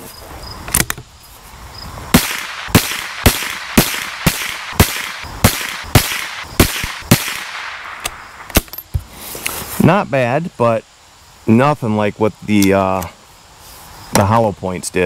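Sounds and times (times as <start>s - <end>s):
rifle shots with echo: 2.1s - 8.7s.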